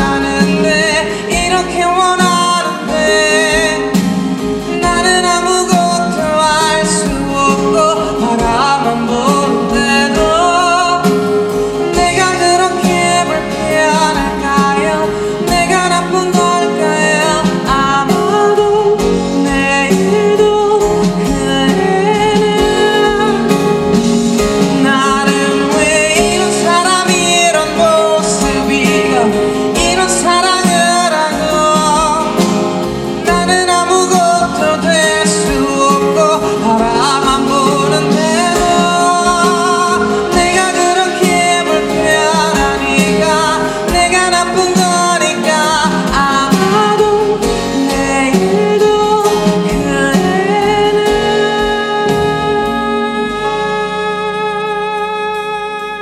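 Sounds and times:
guitar accompaniment: 0.0 - 56.0
man singing: 0.0 - 56.0.

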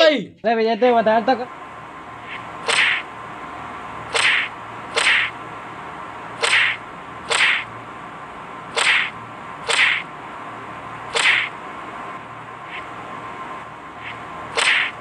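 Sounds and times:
whip-crack slaps: 2.6 - 3.0, 4.1 - 5.4, 6.4 - 7.7, 8.7 - 10.1, 11.1 - 11.5, 14.5 - 15.0.

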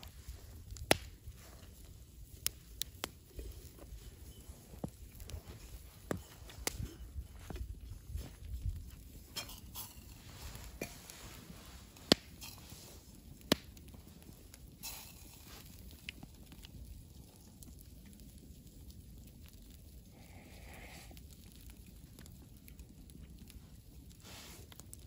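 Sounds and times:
sharp fire pops: 0.0 - 4.0, 7.4 - 17.2
campfire crackling: 0.0 - 25.0.

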